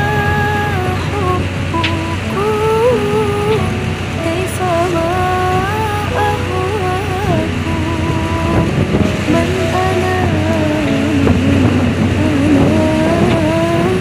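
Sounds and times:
background music melody: 0.0s - 14.0s
rushing water: 0.0s - 14.0s
tugboat engine drone: 0.0s - 14.0s.

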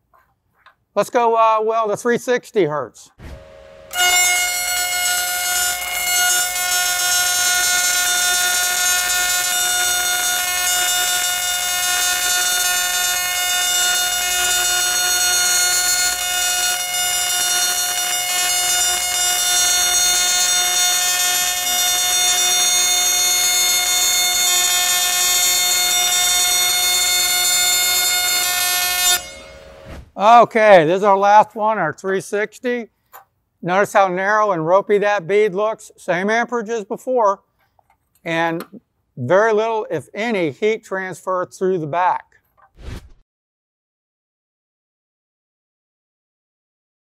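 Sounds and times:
welding arc buzz: 3.2s - 30.0s.

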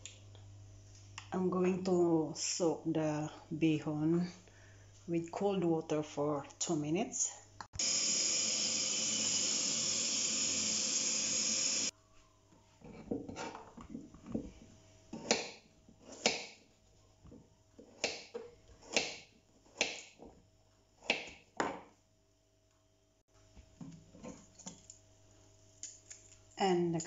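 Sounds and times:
knife chopping on wooden board: 15.2s - 16.6s, 17.8s - 20.2s, 21.0s - 21.8s.

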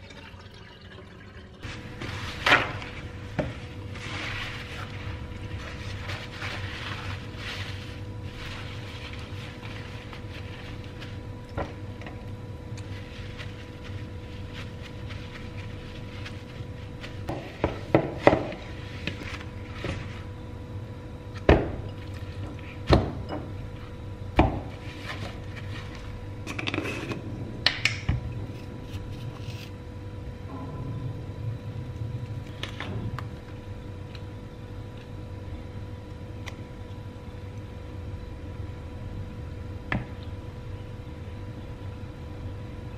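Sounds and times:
low hum: 0.0s - 42.9s
paper towel rustling: 1.6s - 11.4s, 12.8s - 20.4s, 24.7s - 26.4s.

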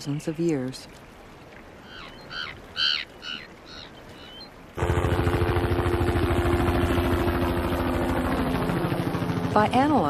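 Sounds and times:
birds calling: 1.4s - 4.8s
helicopter engine and rotor: 4.8s - 10.0s.

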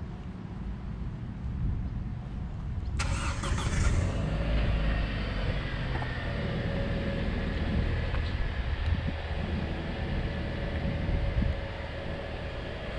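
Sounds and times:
vehicle engine rumbling: 0.0s - 12.9s
hissing with steady whine: 4.9s - 12.9s.

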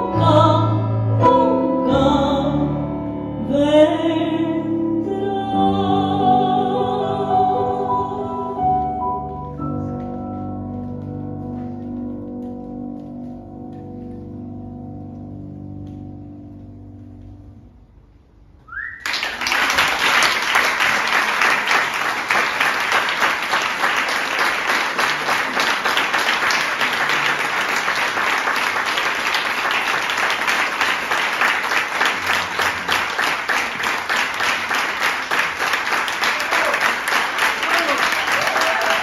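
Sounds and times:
audience applauding: 18.8s - 39.0s.

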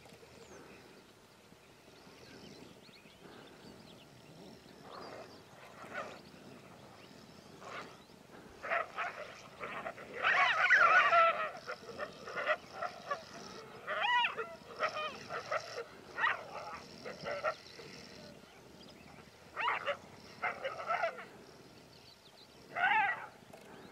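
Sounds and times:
wolves calling: 4.8s - 21.8s, 22.6s - 23.4s.

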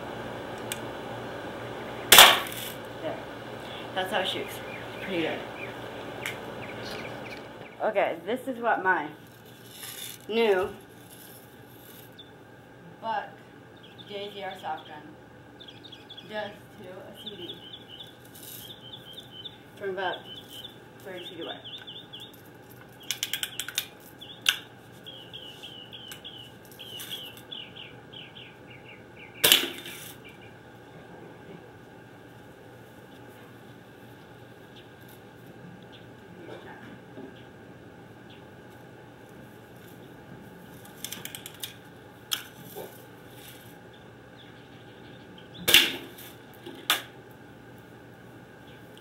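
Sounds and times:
birds chirping: 0.0s - 41.0s, 42.8s - 46.6s, 48.4s - 49.0s
bb gun shot: 2.1s - 2.6s.

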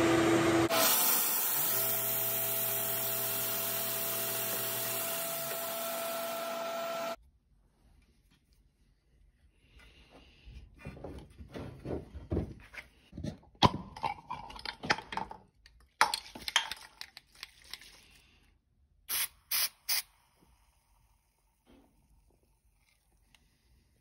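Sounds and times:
short hissing bursts: 19.1s - 20.7s.

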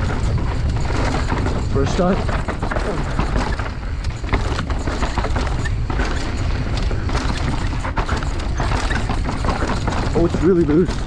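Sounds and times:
bike rattling over bumps: 0.0s - 11.0s
wind rumble on microphone: 0.0s - 11.0s.

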